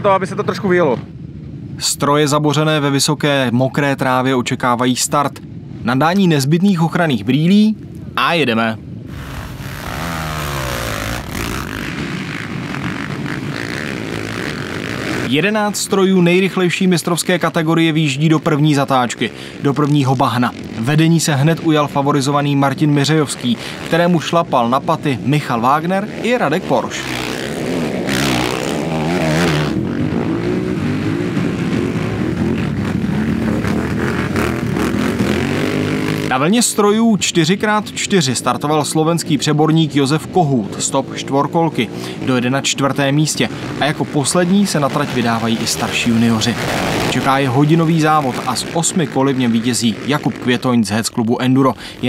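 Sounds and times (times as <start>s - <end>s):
rushing noise: 9.0s - 15.4s
quad bike engines revving: 9.0s - 52.0s.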